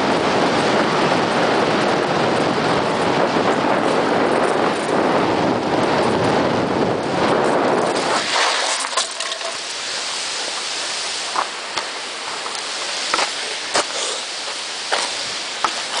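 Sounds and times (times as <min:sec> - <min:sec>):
wind rumble on microphone: 0:00.0 - 0:16.0
steady hiss: 0:07.0 - 0:16.0.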